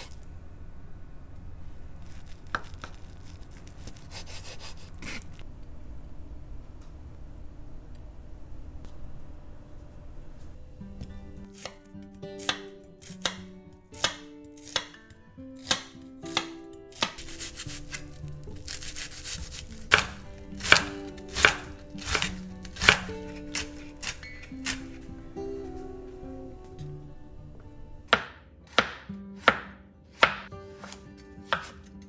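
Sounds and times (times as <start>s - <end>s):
knife chopping on cutting board: 12.4s - 13.4s, 14.0s - 15.0s, 15.6s - 17.7s, 18.7s - 25.0s, 28.1s - 32.0s.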